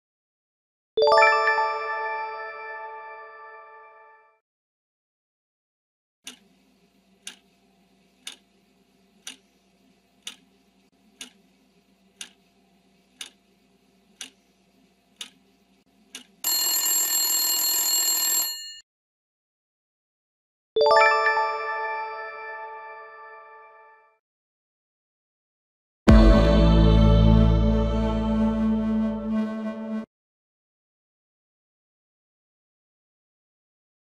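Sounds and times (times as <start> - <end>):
clock ticking: 6.3 - 6.5, 7.2 - 7.5, 8.2 - 8.5, 9.2 - 9.4, 10.2 - 10.5, 11.2 - 11.4, 12.2 - 12.4, 13.2 - 13.4, 14.2 - 14.4, 15.2 - 15.4, 16.1 - 16.4
alarm bell ringing: 16.5 - 18.8.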